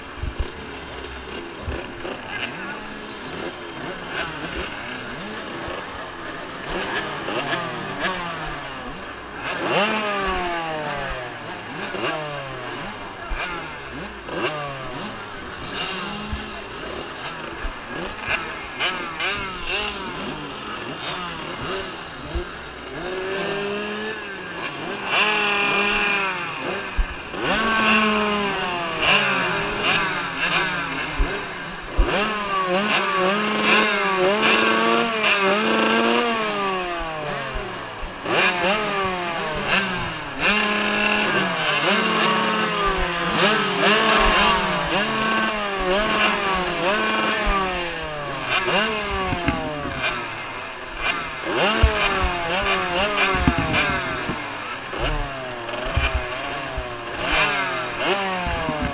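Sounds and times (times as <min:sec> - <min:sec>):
motocross bikes revving: 0:00.0 - 0:58.9.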